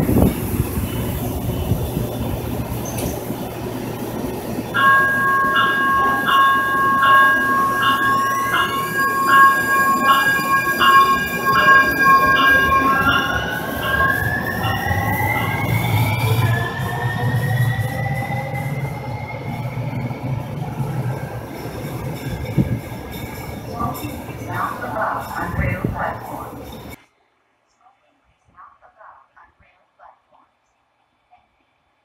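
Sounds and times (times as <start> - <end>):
train bell ringing: 4.6 - 27.0.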